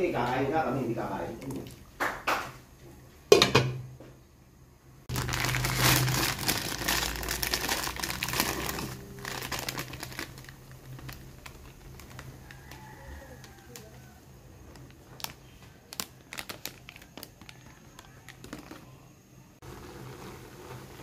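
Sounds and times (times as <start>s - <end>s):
plastic packet crinkling: 5.1s - 18.9s.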